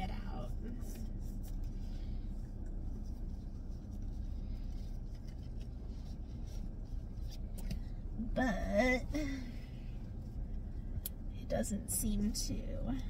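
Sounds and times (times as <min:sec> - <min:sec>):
low steady rumble: 0:00.0 - 0:13.0
fabric rustling: 0:00.8 - 0:07.6.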